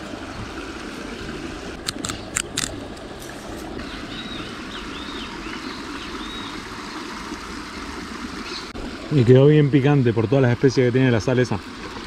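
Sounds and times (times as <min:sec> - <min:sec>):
stream water rushing: 0:00.0 - 0:12.0
sharp clicks: 0:01.8 - 0:02.8.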